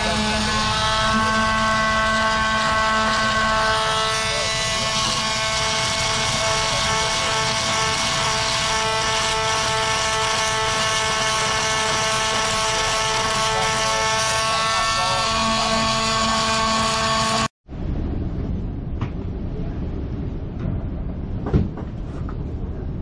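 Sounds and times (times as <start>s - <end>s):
multi-tool motor whine: 0.0s - 17.5s
sandpaper rasping on plastic: 0.0s - 17.5s.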